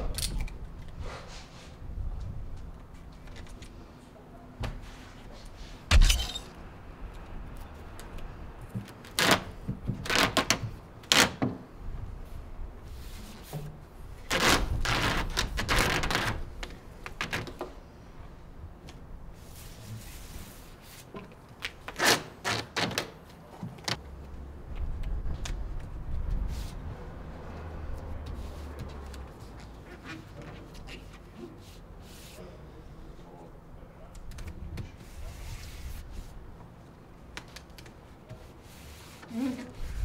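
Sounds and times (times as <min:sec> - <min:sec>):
tape ripping off a roll: 0:09.0 - 0:11.4, 0:14.2 - 0:17.6, 0:21.0 - 0:23.3.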